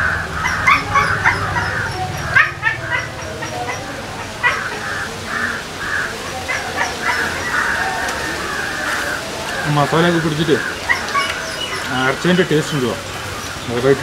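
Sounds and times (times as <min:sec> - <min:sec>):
dog yipping and barking: 0:00.4 - 0:04.9.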